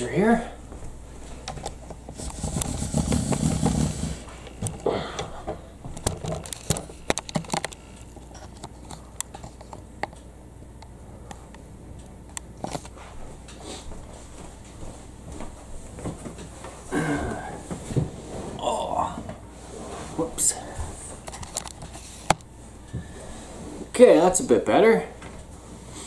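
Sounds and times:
camera handling rumble and rustle: 0:01.3 - 0:10.2, 0:12.4 - 0:13.0, 0:21.1 - 0:22.5
handling clicks and knocks: 0:05.9 - 0:10.2.

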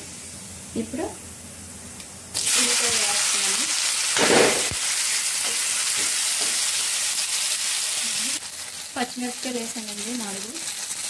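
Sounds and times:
onions sizzling in hot oil: 0:02.3 - 0:11.0.

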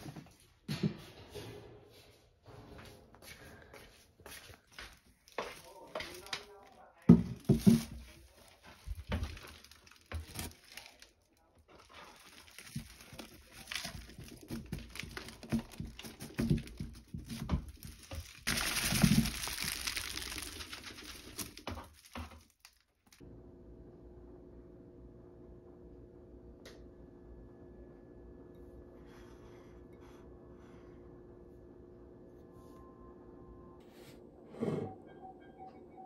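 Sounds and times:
foil duct crinkling: 0:05.1 - 0:23.2
plastic liner rustling: 0:07.3 - 0:23.2.

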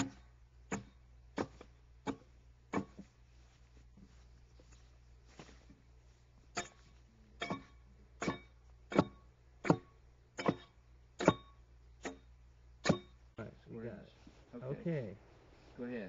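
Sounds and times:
axe chopping into log: 0:00.0 - 0:03.1, 0:07.4 - 0:12.2, 0:12.8 - 0:13.1.

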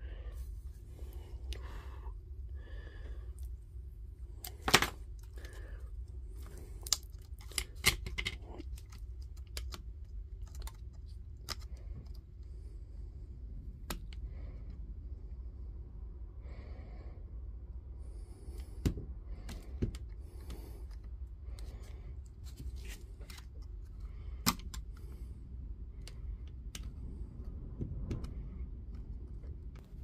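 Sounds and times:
low steady hum: 0:00.0 - 0:30.0
small clicks taps and scrapes: 0:06.4 - 0:12.2, 0:18.6 - 0:25.2, 0:26.0 - 0:30.0.

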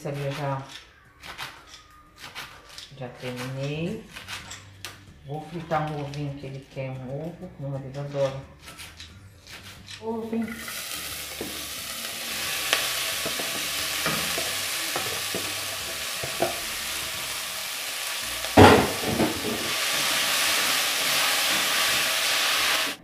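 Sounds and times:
greens sizzling in a pot: 0:10.4 - 0:23.0
wooden spoon knocking on pot: 0:18.6 - 0:19.7.

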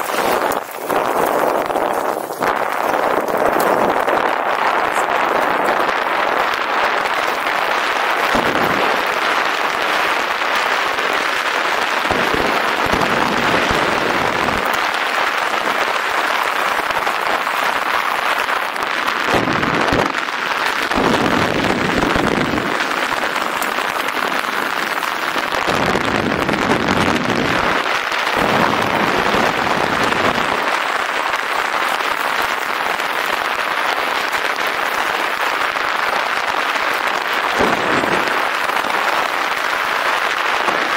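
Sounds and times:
wind on microphone: 0:00.0 - 0:11.1, 0:20.8 - 0:31.5, 0:37.5 - 0:40.0
tyres over stony track: 0:00.0 - 0:18.7
deep rumbles: 0:37.6 - 0:38.7.

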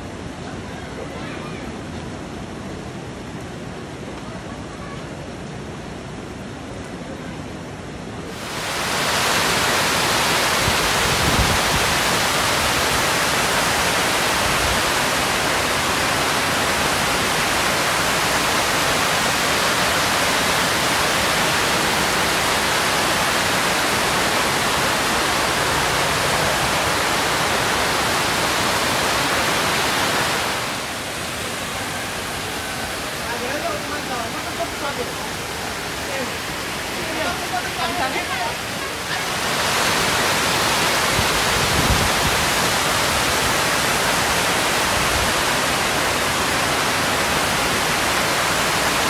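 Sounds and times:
heavy rain: 0:00.0 - 0:49.0
floodwater rushing: 0:08.1 - 0:49.0.

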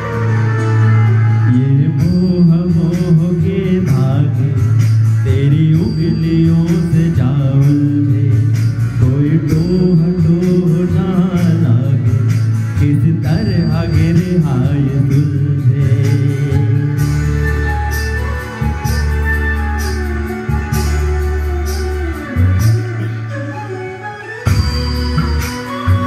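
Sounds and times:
instrumental backing music: 0:00.0 - 0:26.0
man singing into microphone: 0:01.4 - 0:17.8.

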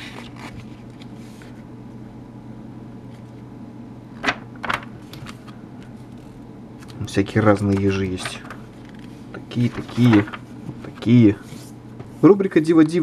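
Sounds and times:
magazine page rustling: 0:00.0 - 0:01.7, 0:06.9 - 0:11.8
steady low hum: 0:00.0 - 0:13.0.

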